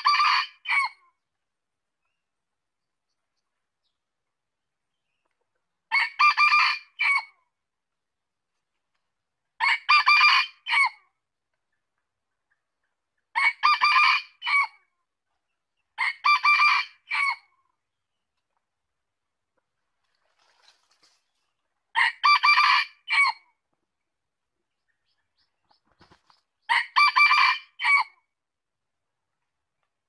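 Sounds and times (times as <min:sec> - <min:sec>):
rooster crowing: 0:22.0 - 0:23.4, 0:26.7 - 0:28.1.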